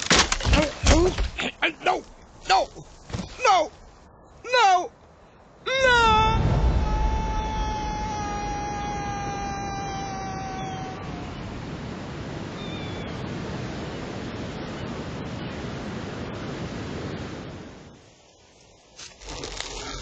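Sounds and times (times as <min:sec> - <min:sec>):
wind rushing over sea: 0:03.6 - 0:18.5.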